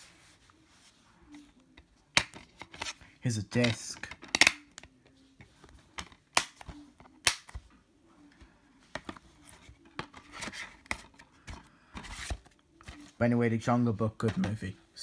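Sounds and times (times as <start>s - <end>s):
plastic case clicks and snaps: 3.6s - 4.9s, 6.0s - 7.6s.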